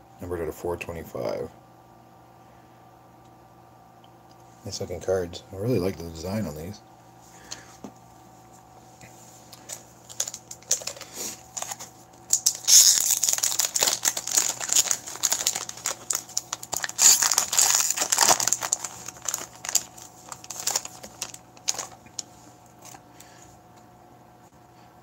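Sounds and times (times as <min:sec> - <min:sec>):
foil wrapper crinkling and tearing: 0:09.6 - 0:23.0.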